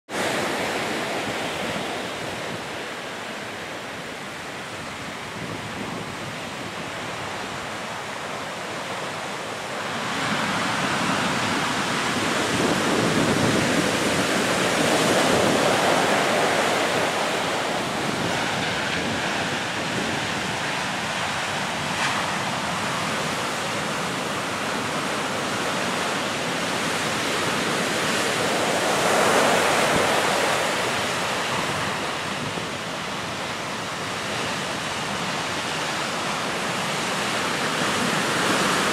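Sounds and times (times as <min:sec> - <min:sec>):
stiff wind: 0:00.1 - 0:38.9
surf breaking on beach: 0:04.8 - 0:38.9.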